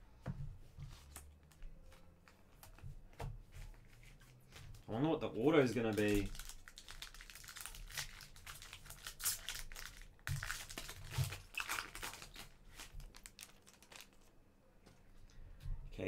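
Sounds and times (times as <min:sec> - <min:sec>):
cards and wrapper crinkling: 0:04.0 - 0:14.3.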